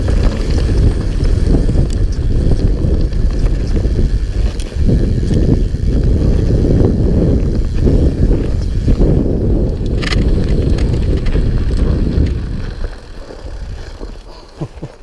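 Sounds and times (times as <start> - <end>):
bike rattle: 0.0 - 15.0
bike tyres rumbling over rocks: 0.0 - 15.0
wind buffeting microphone: 0.0 - 15.0.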